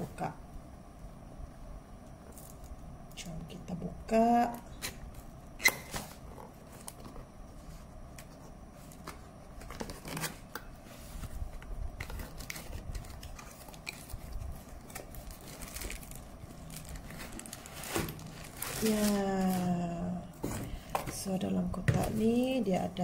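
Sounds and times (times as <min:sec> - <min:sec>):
cardboard flaps scraping and clicking: 0:05.8 - 0:16.1.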